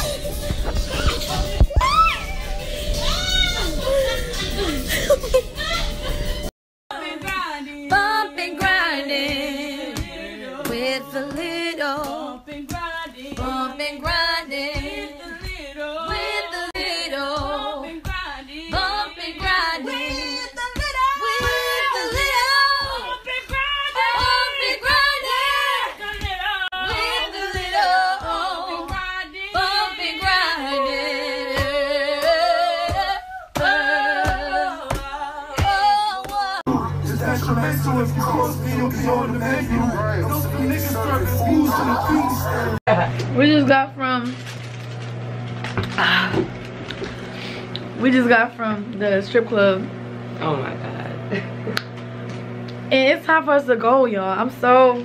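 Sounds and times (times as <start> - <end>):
women singing a cappella: 6.9 - 42.8.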